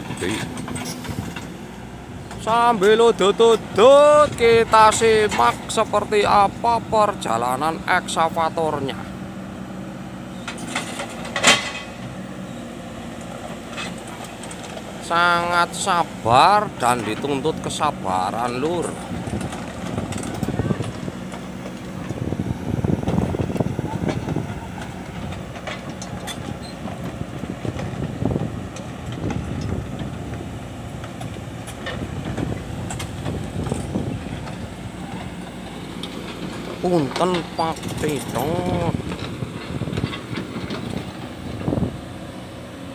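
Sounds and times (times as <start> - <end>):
excavator diesel engine running: 0.0 - 42.9.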